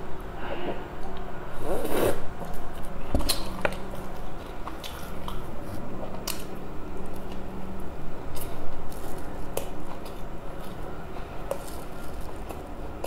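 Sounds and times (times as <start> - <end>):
slurp through a drinking straw: 1.6 - 2.2
chewing: 2.4 - 7.4.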